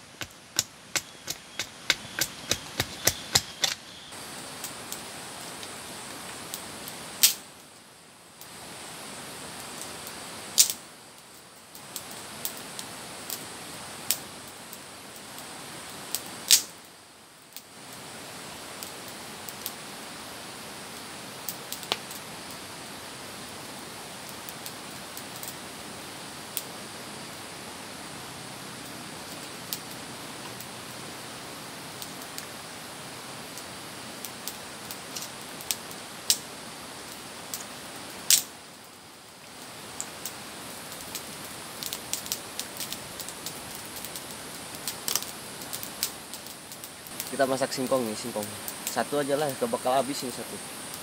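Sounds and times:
campfire hissing and crackling: 0.0 - 51.0
machete chopping wood: 0.2 - 3.8.

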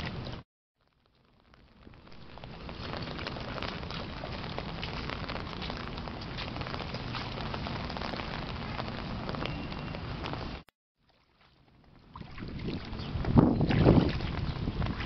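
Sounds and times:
rain on umbrella: 0.1 - 10.7.

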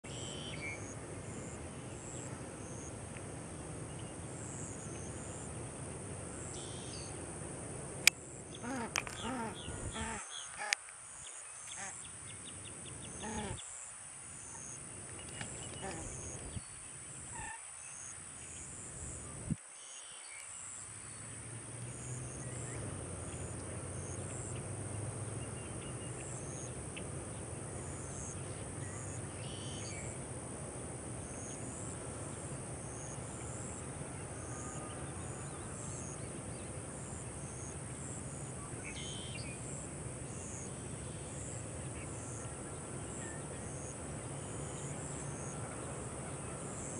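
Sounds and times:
short insect chirps: 0.1 - 2.9, 6.4 - 7.2, 28.0 - 30.2, 37.1 - 39.8
insects droning: 0.1 - 46.9
short bird calls: 8.6 - 10.8, 13.2 - 13.7.

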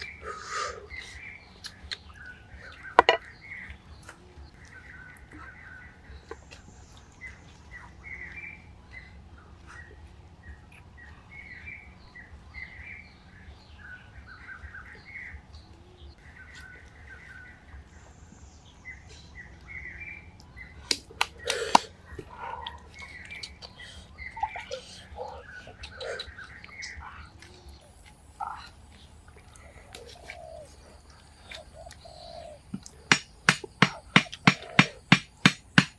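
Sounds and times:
birds chirping: 0.0 - 35.9
sharp knocks: 33.1 - 35.9.

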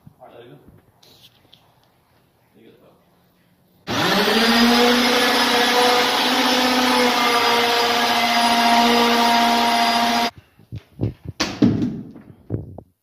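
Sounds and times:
electric drill boring into wood: 3.9 - 10.3.

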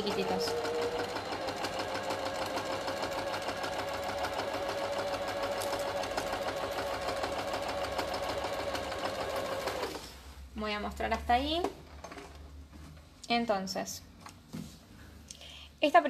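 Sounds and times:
sewing machine stitching: 0.0 - 10.1.

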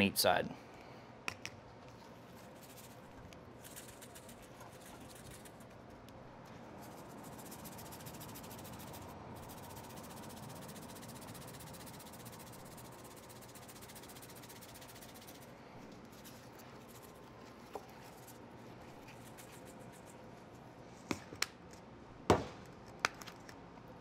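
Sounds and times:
shaker bottle rattling: 2.4 - 5.7, 6.8 - 15.5.

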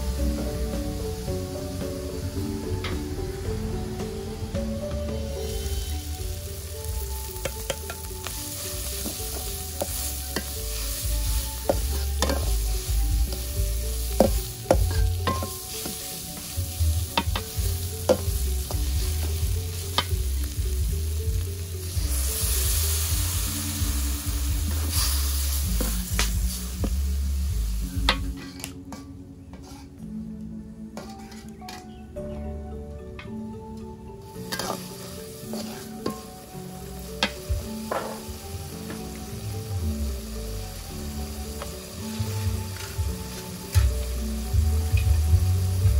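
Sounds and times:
vegetables sizzling in a wok: 0.0 - 29.0, 34.2 - 45.9
spatula scraping and knocking wok: 5.1 - 30.0, 31.0 - 31.9, 34.3 - 39.4, 41.5 - 45.9.

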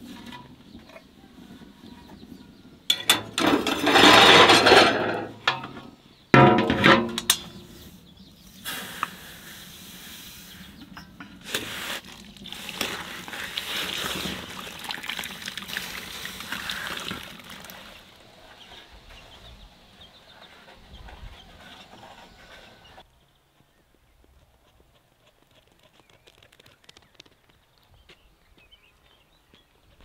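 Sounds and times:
metal basin clanking: 2.9 - 7.7.

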